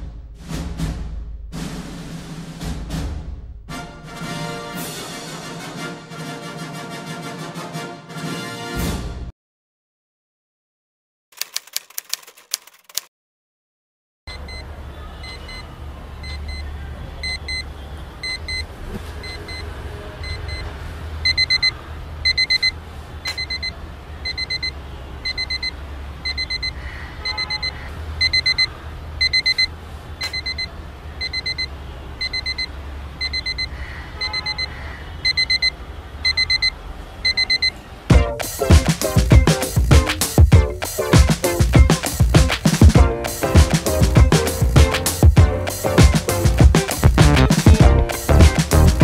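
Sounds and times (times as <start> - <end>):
alarm clock beeping: 17.2 - 37.8.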